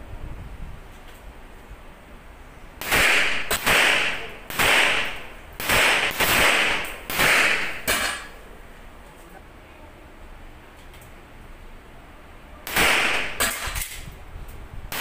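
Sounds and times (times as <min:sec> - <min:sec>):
pistol shots with ringing echo: 0:02.8 - 0:08.4, 0:12.6 - 0:13.9.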